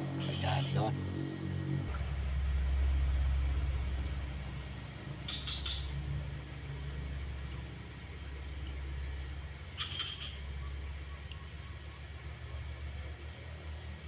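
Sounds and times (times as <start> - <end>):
low rumble: 0.0 - 9.8
high-pitched insect drone: 0.0 - 14.0
chirps: 5.2 - 6.0, 9.7 - 13.3.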